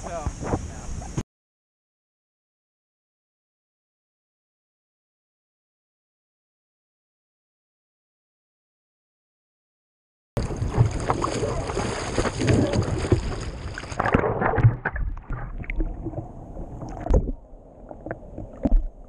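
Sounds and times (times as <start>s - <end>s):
water splashing and sloshing: 10.4s - 19.0s.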